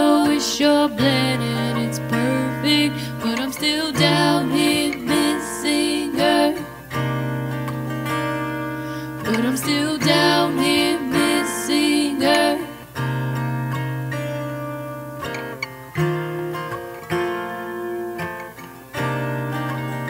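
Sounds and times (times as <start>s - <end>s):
woman singing: 0.0s - 6.9s, 9.2s - 12.9s
strummed acoustic guitar: 0.0s - 20.0s.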